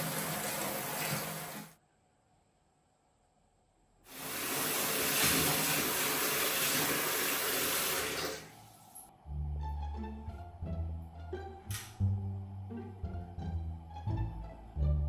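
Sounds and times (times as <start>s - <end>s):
water running from a tap: 0.0s - 1.7s, 4.1s - 8.7s.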